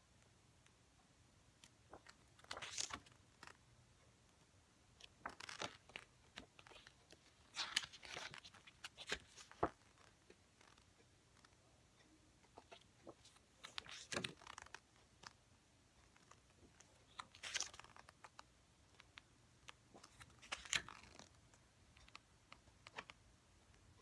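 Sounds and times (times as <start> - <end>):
book pages turning: 1.9 - 3.6, 5.0 - 11.5, 12.5 - 15.4, 16.0 - 23.2.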